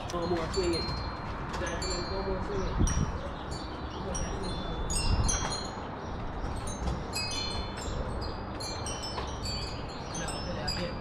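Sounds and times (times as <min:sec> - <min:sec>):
wind chimes tinkling: 0:00.0 - 0:11.0.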